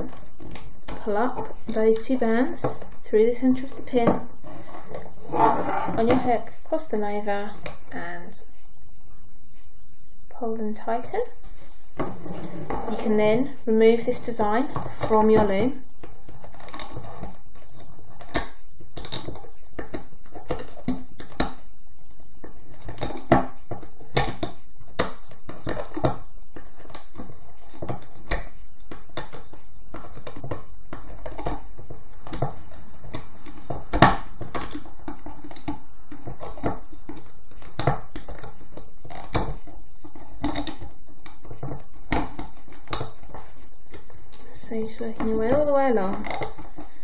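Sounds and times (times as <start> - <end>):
rubber bands clicking and snapping: 18.2 - 21.6.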